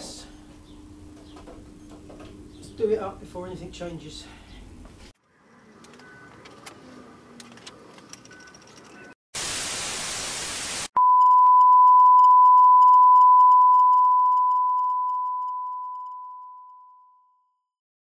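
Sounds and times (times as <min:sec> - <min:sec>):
white-noise static: 0:09.4 - 0:11.0
steady test-tone beep: 0:11.0 - 0:16.7.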